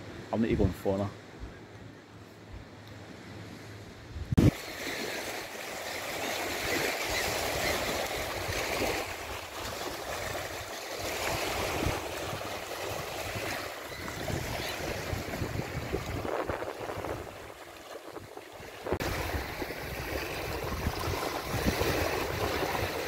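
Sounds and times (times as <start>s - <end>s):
waves lapping on shore: 2.2s - 23.0s
wind rumbling on microphone: 3.4s - 4.7s, 7.0s - 23.0s.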